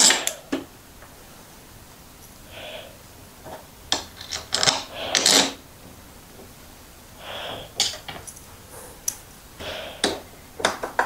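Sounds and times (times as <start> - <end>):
metal parts clicking and tapping: 3.5 - 5.6, 7.8 - 9.2, 10.0 - 11.0.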